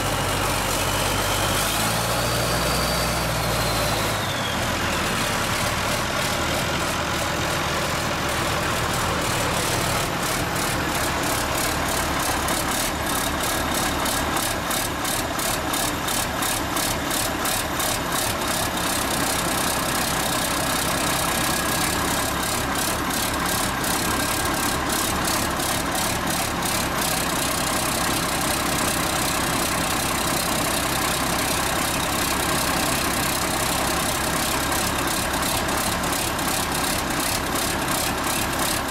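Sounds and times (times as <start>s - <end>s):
loud raw diesel engine running: 0.0s - 38.9s.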